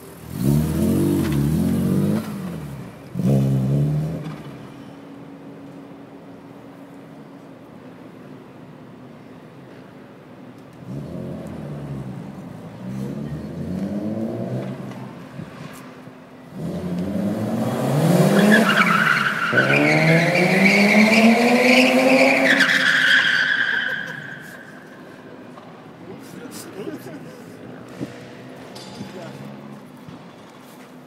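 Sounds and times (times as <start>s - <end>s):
car engine revving: 0.1s - 4.6s, 16.5s - 23.3s
tyres squealing: 18.3s - 25.1s.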